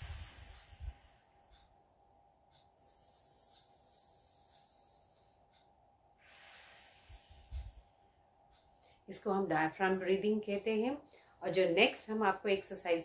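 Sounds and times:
slow deep breath: 0:00.0 - 0:01.7, 0:02.5 - 0:09.1.

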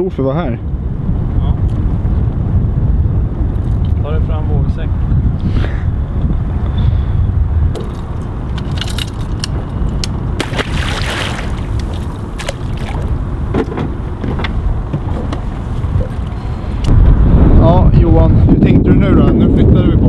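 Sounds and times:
wind rumbling on microphone: 0:00.0 - 0:20.0
fish splashing into water: 0:10.4 - 0:13.1.

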